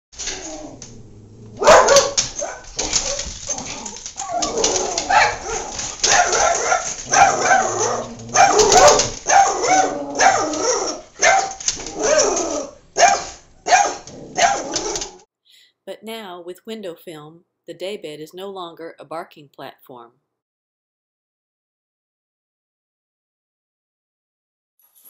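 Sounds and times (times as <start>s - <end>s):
dogs barking: 1.6s - 15.2s.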